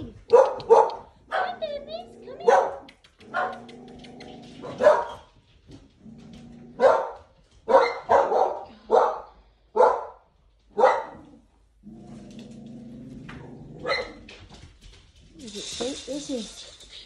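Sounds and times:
dog barking: 0.2s - 1.8s, 2.4s - 3.6s, 4.6s - 5.3s, 6.8s - 11.3s, 13.8s - 14.2s.

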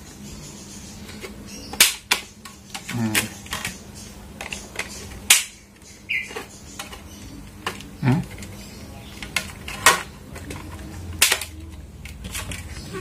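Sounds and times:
plastic squeak: 12.3s - 13.0s.

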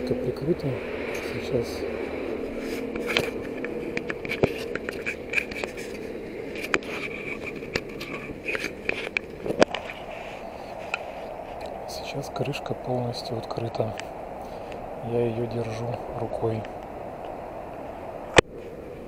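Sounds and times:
steady hiss: 0.0s - 19.0s
scrapes on camera housing: 2.6s - 11.6s.

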